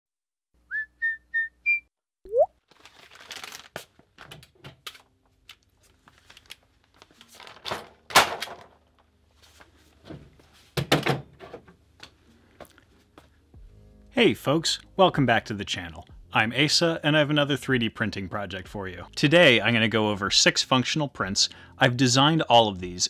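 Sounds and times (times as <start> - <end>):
rising electronic blip: 1.4 - 2.5
electronic beeps: 1.6 - 2.5.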